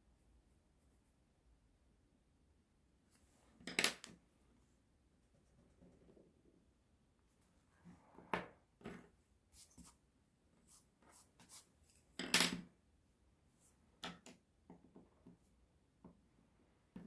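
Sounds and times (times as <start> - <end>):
pencil tapping and scratching: 9.6 - 10.0, 10.7 - 12.6.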